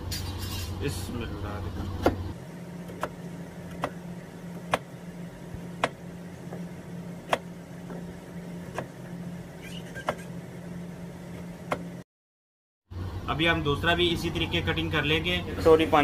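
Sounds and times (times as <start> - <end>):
steady low hum: 0.0 - 12.0, 12.9 - 16.0.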